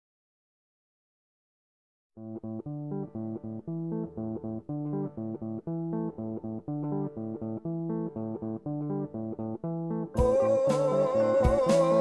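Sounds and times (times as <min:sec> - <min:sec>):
plucked guitar: 0:02.2 - 0:12.0
bass line: 0:10.2 - 0:12.0.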